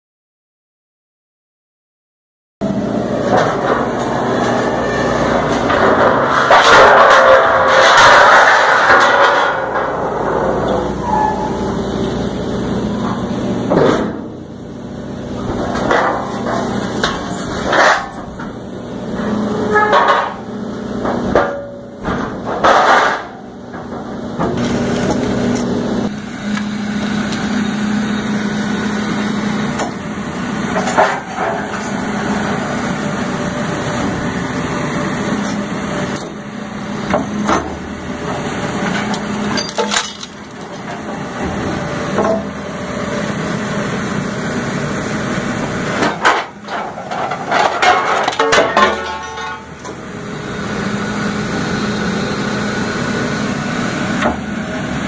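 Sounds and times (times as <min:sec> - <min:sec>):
machine humming: 0:02.6 - 0:22.6, 0:23.3 - 0:55.0
metal clanking and cracking: 0:03.2 - 0:11.5, 0:15.4 - 0:25.7, 0:30.7 - 0:32.0, 0:37.1 - 0:42.6, 0:45.9 - 0:50.0.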